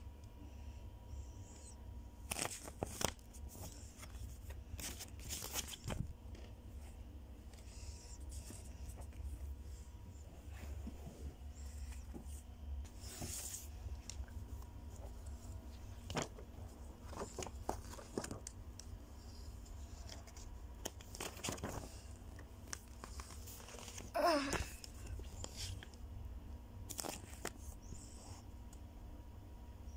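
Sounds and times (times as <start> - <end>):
paper leaflets rustling: 2.2 - 6.8, 11.8 - 25.9, 26.9 - 27.7.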